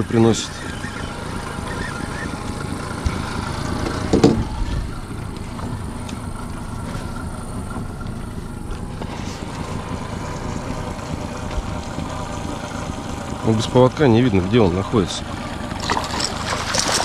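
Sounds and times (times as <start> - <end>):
outboard motor droning: 0.0 - 17.0
clatter of knocks: 3.8 - 4.4.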